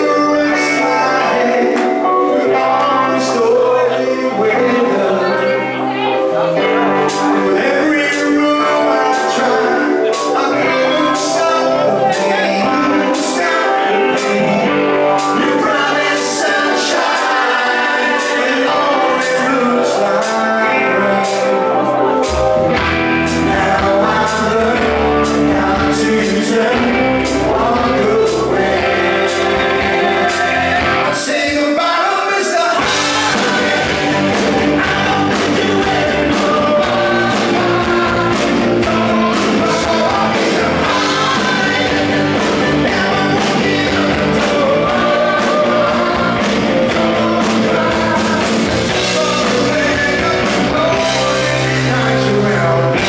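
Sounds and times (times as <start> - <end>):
bass guitar: 0.0 - 31.8, 32.6 - 53.0
electric guitars: 0.0 - 53.0
male lead vocal: 0.0 - 53.0
drums with steady beat: 6.9 - 7.5, 8.1 - 8.4, 9.1 - 19.6, 21.2 - 31.7, 32.7 - 53.0.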